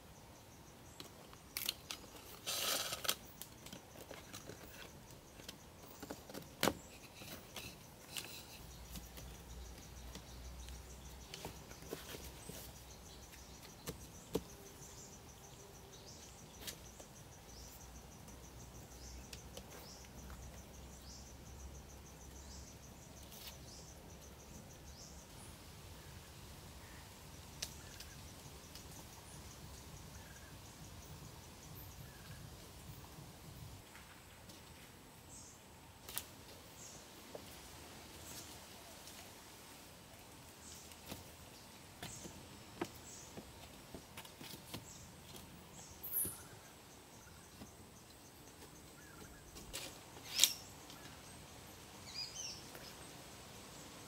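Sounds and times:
high insect trill: 0:00.0 - 0:33.7.

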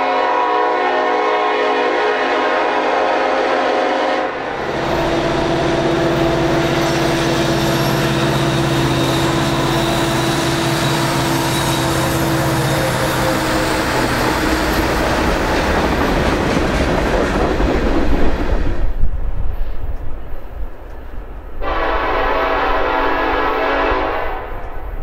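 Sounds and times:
diesel locomotive engine droning: 0:00.0 - 0:25.0
train wheels rolling on rail: 0:04.3 - 0:23.2.

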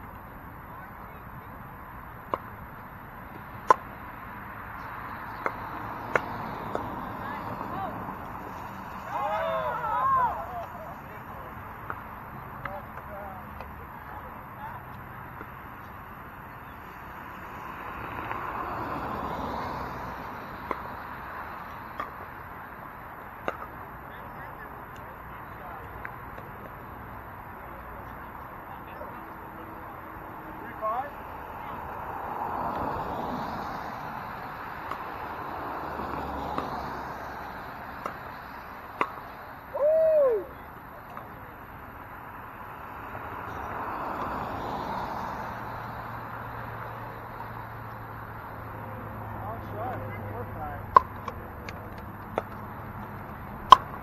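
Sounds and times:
paddles striking ball: 0:02.2 - 0:02.6, 0:03.6 - 0:04.0, 0:04.8 - 0:07.0, 0:23.4 - 0:23.8, 0:38.0 - 0:39.4, 0:50.8 - 0:54.0
paddles striking plastic ball: 0:53.6 - 0:54.0.

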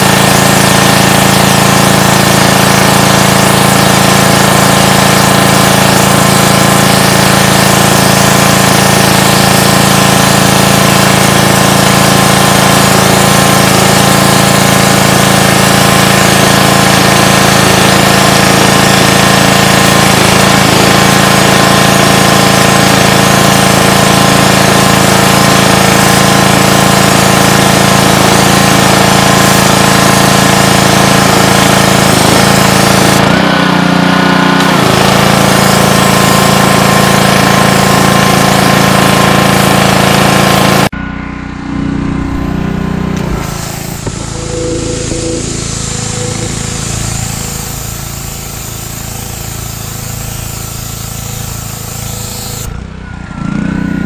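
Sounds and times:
sandblasting spray hiss: 0:00.0 - 0:33.2, 0:34.6 - 0:40.9, 0:43.2 - 0:52.7
pressure washer engine running: 0:00.0 - 0:54.0.

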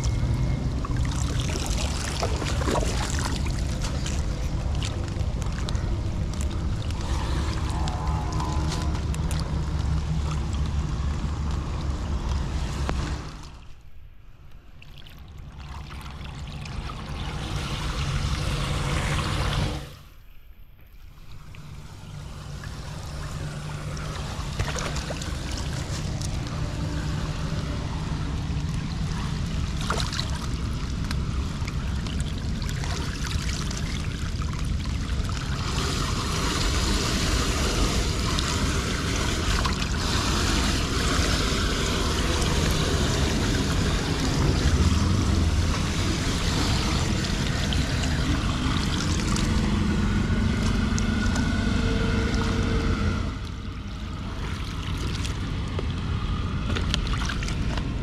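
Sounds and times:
floodwater rushing down storm drain: 0:00.0 - 0:13.9, 0:14.7 - 0:20.1, 0:20.9 - 0:58.0
low rumble: 0:00.0 - 0:58.0.

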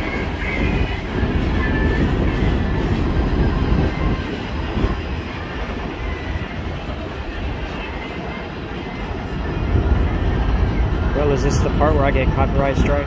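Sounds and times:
high wheel squeal: 0:00.0 - 0:09.6
freight train rumbling on rails: 0:00.0 - 0:13.0.

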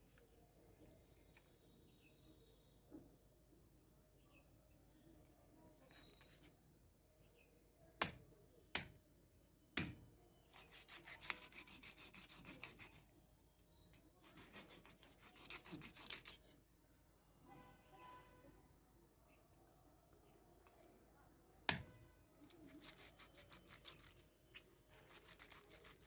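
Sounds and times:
faint bird chirps: 0:00.0 - 0:08.7, 0:17.4 - 0:26.0
quick knife cutting strokes: 0:10.5 - 0:13.1, 0:14.2 - 0:16.6, 0:22.5 - 0:26.0.

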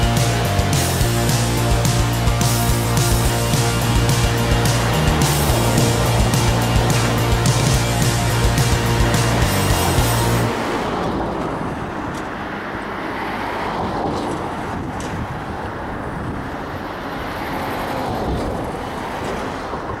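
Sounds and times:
background music: 0:00.0 - 0:11.2
wind: 0:00.0 - 0:20.0
distant traffic-like noise: 0:01.1 - 0:20.0.

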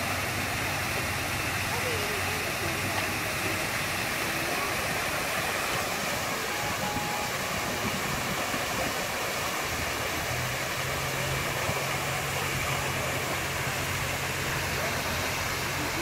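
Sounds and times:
waterfall rushing into pool: 0:00.0 - 0:16.0.

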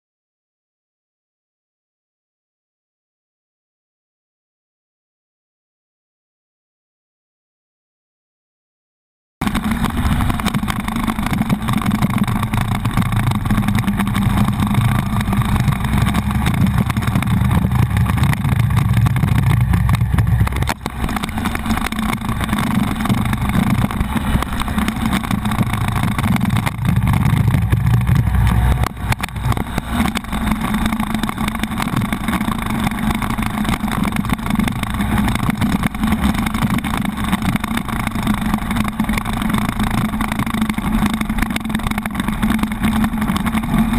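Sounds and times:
motorcycle engine running: 0:09.4 - 0:43.9.

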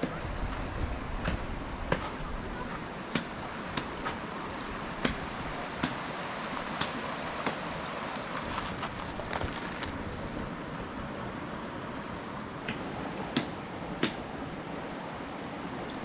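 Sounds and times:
steady background noise: 0:00.0 - 0:16.0
sharp chopping knocks: 0:01.2 - 0:02.2.

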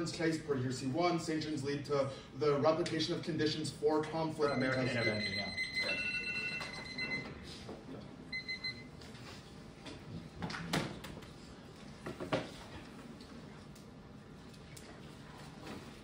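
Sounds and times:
electronic timer beeping: 0:04.5 - 0:07.3.

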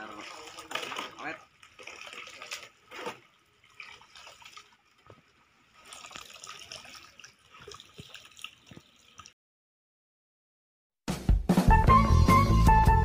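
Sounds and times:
roots sloshing in mud slurry: 0:00.0 - 0:09.3
mud dripping: 0:00.0 - 0:09.4.

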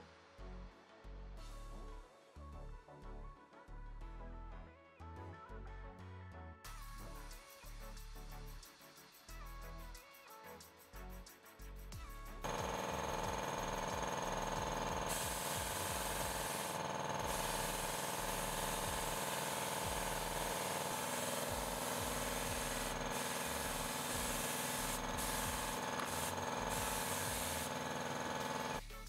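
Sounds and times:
air compressor running: 0:12.4 - 0:28.8
paint spray gun hissing: 0:12.4 - 0:28.8.

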